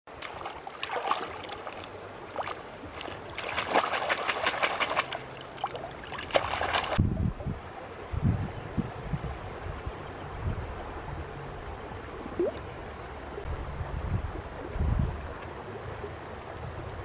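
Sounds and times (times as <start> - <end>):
water splashing and sloshing: 0.1 - 7.3, 12.0 - 13.5.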